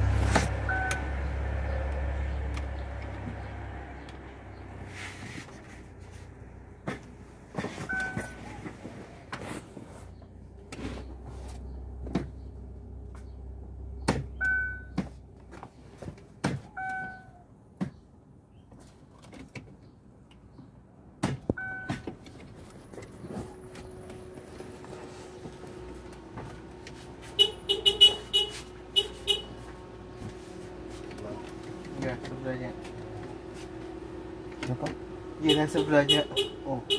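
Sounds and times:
short electronic beeps: 0.6 - 1.0, 7.9 - 8.4, 14.4 - 14.9.

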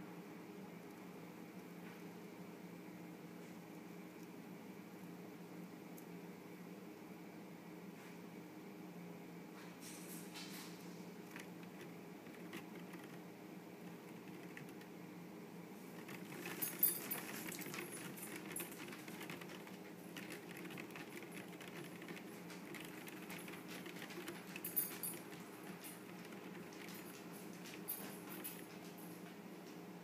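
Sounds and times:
mice scrabbling on cardboard: 10.2 - 15.0, 15.8 - 28.9.

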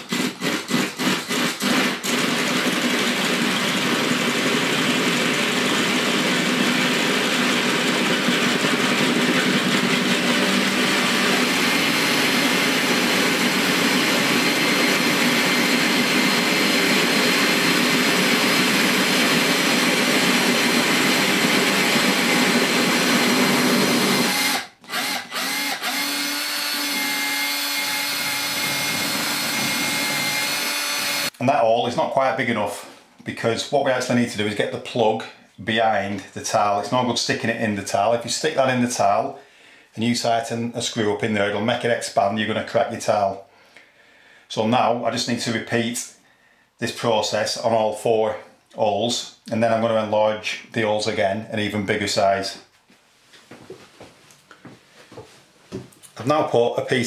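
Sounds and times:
cordless drill drilling into tile: 0.0 - 31.3.

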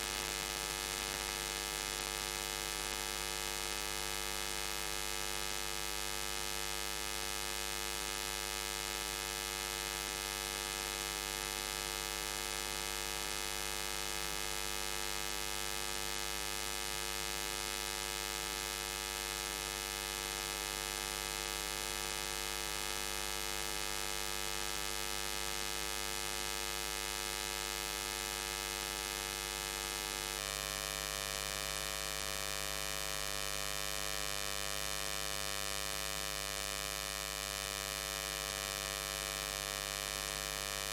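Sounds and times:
electrical hum and buzz: 0.0 - 2.4.

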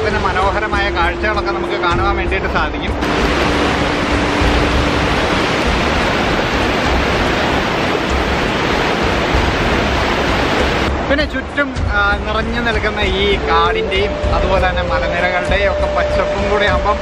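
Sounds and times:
waterfall rushing over rock: 3.0 - 15.2.

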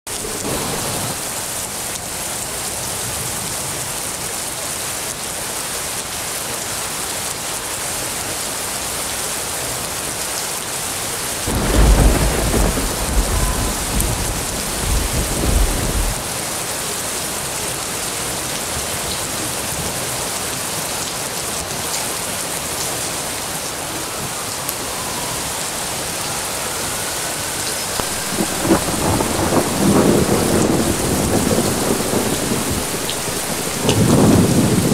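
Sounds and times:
thunder rumble: 0.1 - 1.5, 11.5 - 16.2, 27.9 - 34.9
heavy rain falling: 0.1 - 34.9.

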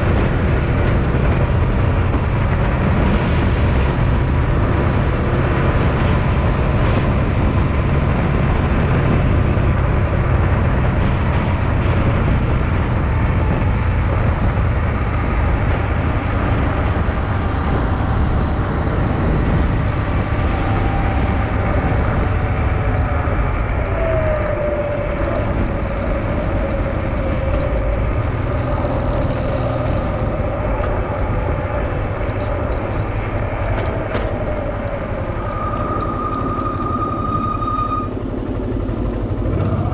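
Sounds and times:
wind noise on microphone: 0.0 - 39.9
motorcycle engine running: 38.0 - 39.9.

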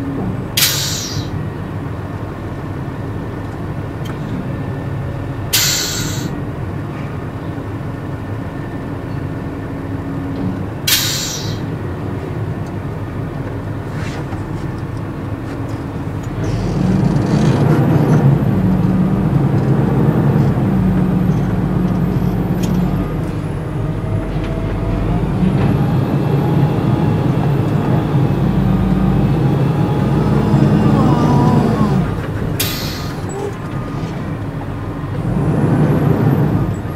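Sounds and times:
truck engine running: 0.0 - 36.9
air-brake hisses: 0.6 - 1.4, 5.5 - 6.4, 10.9 - 11.7, 32.6 - 33.6.

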